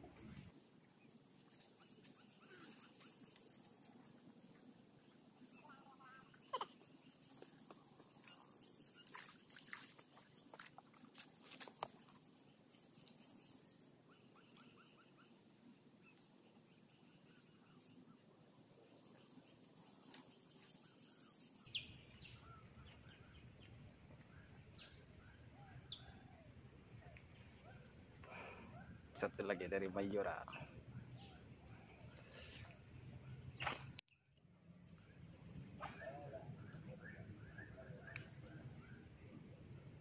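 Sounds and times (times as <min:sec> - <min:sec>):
faint chirps: 0:00.0 - 0:04.2, 0:05.0 - 0:09.8.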